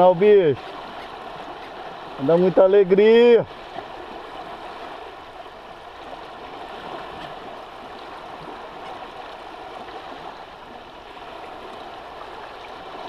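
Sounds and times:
river current flowing: 0.0s - 13.0s.

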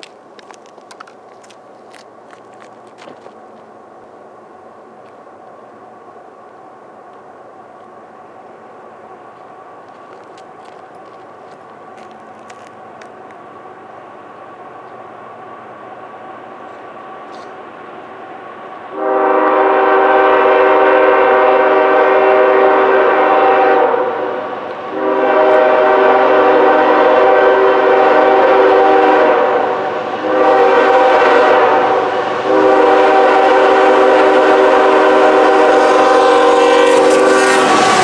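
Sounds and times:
locomotive air horn: 18.9s - 38.0s.

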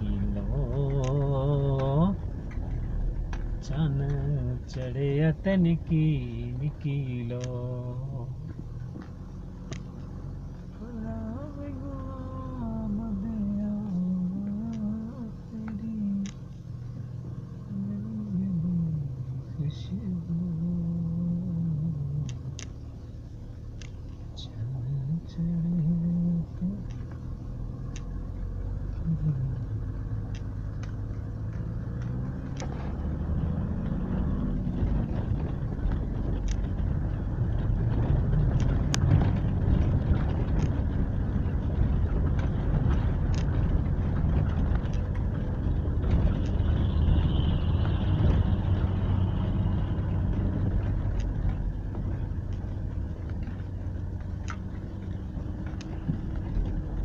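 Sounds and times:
car engine drone: 0.0s - 57.0s
clicks and rattles: 34.7s - 46.8s.

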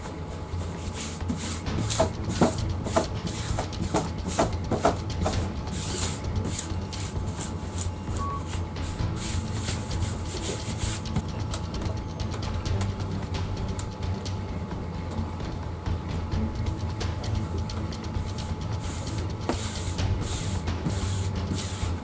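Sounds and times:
hand rubbing on poster: 0.0s - 11.5s, 18.0s - 22.0s.

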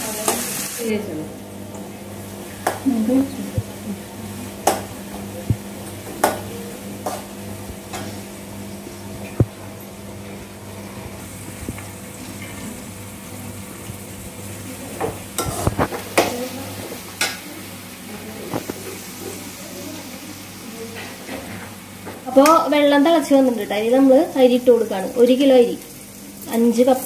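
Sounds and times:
steady low hum: 0.0s - 20.9s
onions sizzling in oil: 0.0s - 27.0s.

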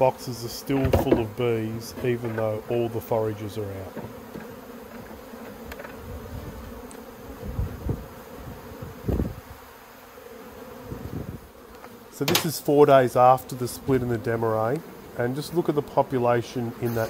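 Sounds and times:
honeybees buzzing: 0.0s - 17.0s
low thumps: 0.7s - 2.7s.

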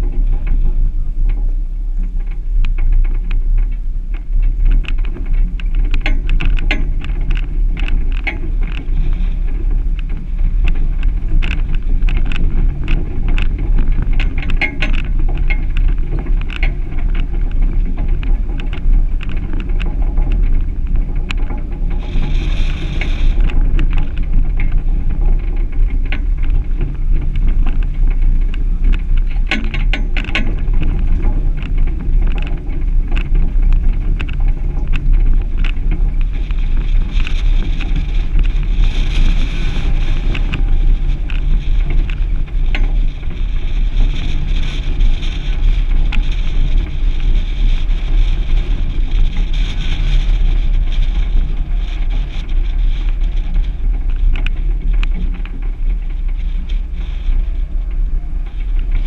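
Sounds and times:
vehicle low rumble: 0.0s - 59.0s
wind buffeting microphone: 0.0s - 59.0s
clicks and knocks: 11.4s - 17.3s.

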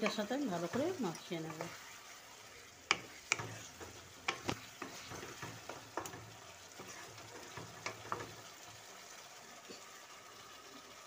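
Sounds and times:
spatula scraping a pan: 0.0s - 8.7s
low sizzle: 0.0s - 11.0s.

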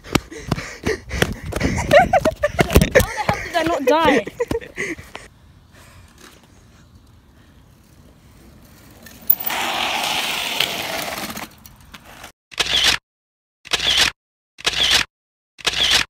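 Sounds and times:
rushing wind: 0.4s - 3.5s
bike tyre noise: 5.8s - 12.3s.

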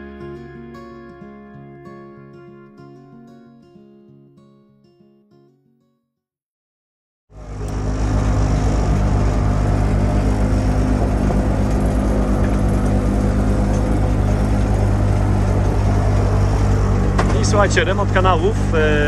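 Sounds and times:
boat engine throbbing: 7.4s - 19.0s.

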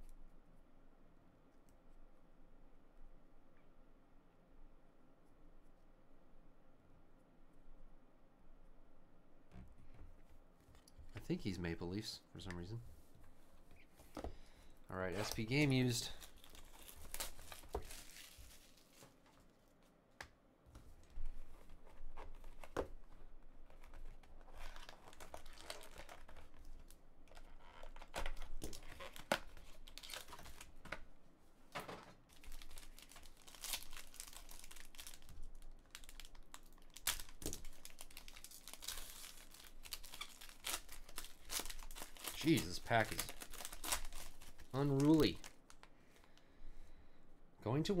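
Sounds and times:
foil pack crinkling: 15.0s - 19.4s, 21.5s - 31.0s, 32.3s - 46.4s
plastic wrap crinkling: 15.0s - 19.8s, 21.1s - 31.2s, 32.2s - 46.4s.

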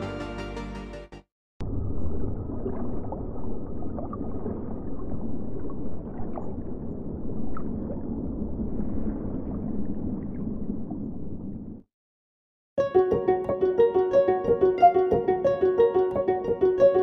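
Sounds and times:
low underwater rumble: 1.6s - 11.8s
small gurgling blips: 1.7s - 11.6s.

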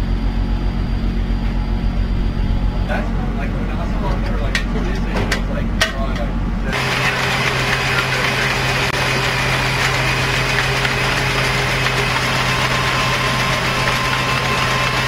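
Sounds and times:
machinery hum: 0.0s - 15.0s
wind noise: 0.4s - 6.8s.

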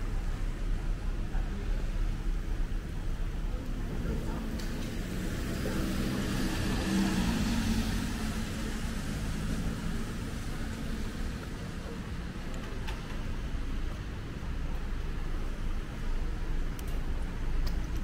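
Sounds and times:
low rumble of city traffic: 0.0s - 18.0s
car driving past on wet road: 5.2s - 10.7s.

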